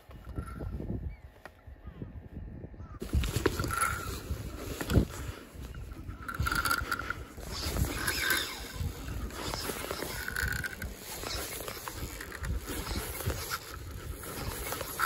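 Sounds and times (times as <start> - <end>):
wind noise on microphone: 0.0 - 15.0
spinning reel being wound: 3.4 - 15.0.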